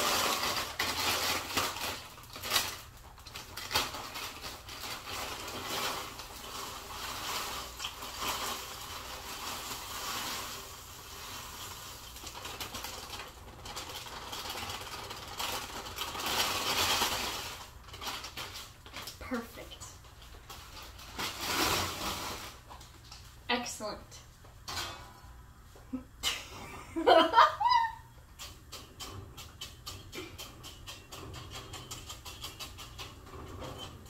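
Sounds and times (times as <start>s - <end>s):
tortilla chips clattering into pot: 0.0s - 19.2s, 20.1s - 22.8s, 27.1s - 34.0s
chip bag crinkling: 0.0s - 23.3s.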